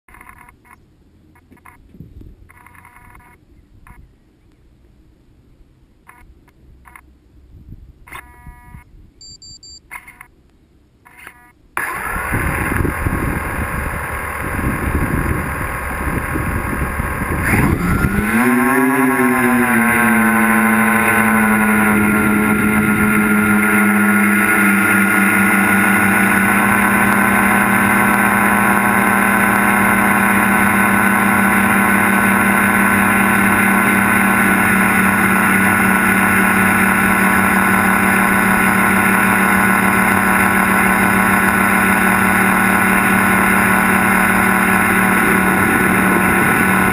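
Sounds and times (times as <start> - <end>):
drone propellers whirring: 11.8 - 46.9
wind buffeting microphone: 12.2 - 18.7.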